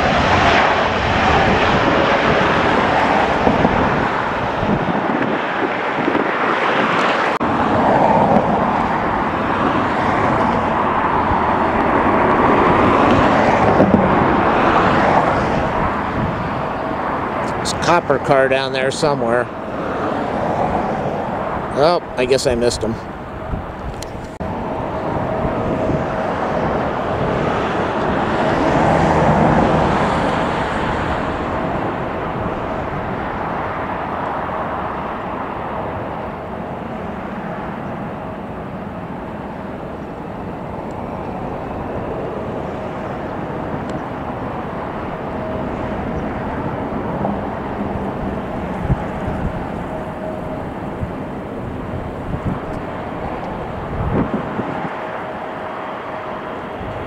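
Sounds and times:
jet engine roar: 0.0 - 57.0
faint steady whine: 29.6 - 57.0.

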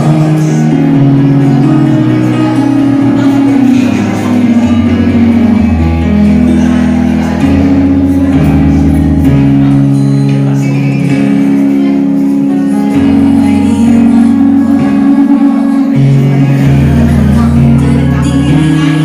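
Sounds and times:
karaoke backing track: 0.0 - 19.0.

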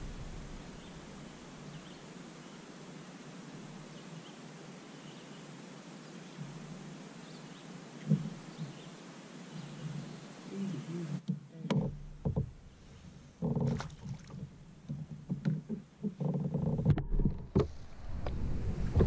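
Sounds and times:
lakeside ambience: 0.0 - 19.0
faint bird chirps: 0.6 - 2.8, 3.6 - 11.2.

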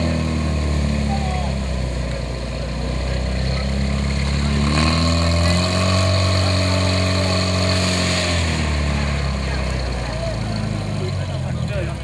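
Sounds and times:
pump engine revving: 2.5 - 11.3.

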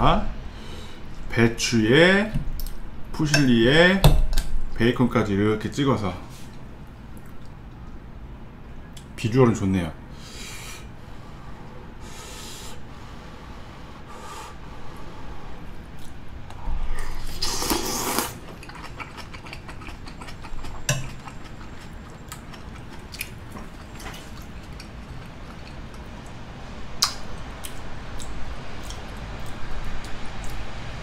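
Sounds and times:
person eating mouth sounds: 15.9 - 26.1.

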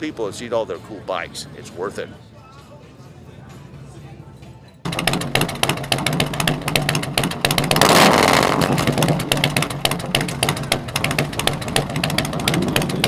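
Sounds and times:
motorcycle engine idling: 4.9 - 13.0.

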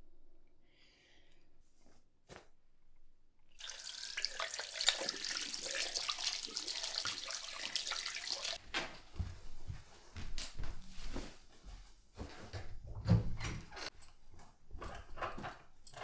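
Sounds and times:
tap water on hands in sink: 3.6 - 8.6.

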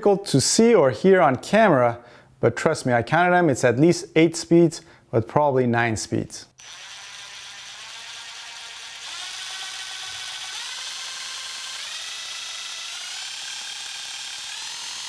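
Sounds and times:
impact driver motor whine: 6.6 - 15.0.

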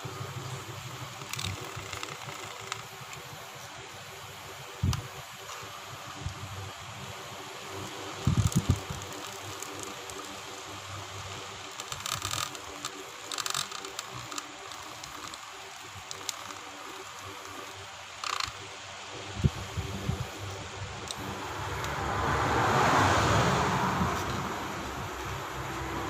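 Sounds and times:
metal shaft scraping plastic: 1.0 - 2.9, 11.7 - 18.6.

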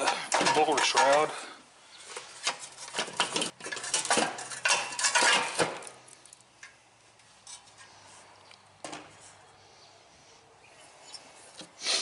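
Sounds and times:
metal scraping and clattering: 0.0 - 1.5, 2.1 - 6.1.

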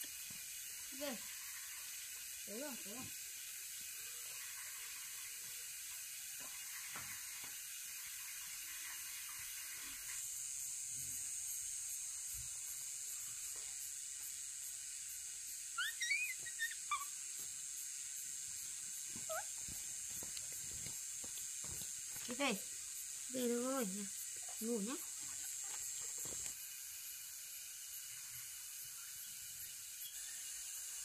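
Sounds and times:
steady high hiss: 0.0 - 31.0
small animal squeaky calls: 15.8 - 17.2, 19.2 - 19.6.

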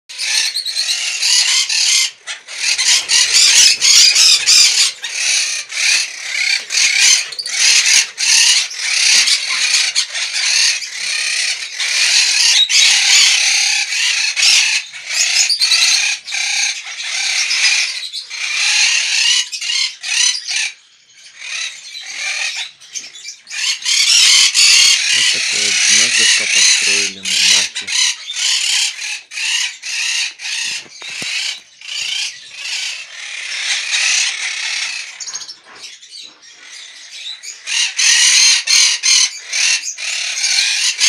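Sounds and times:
parakeets squawking and screeching: 0.1 - 41.0.

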